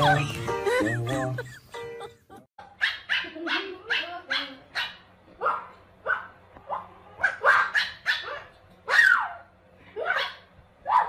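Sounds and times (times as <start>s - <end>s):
puppy yapping: 2.7s - 11.0s.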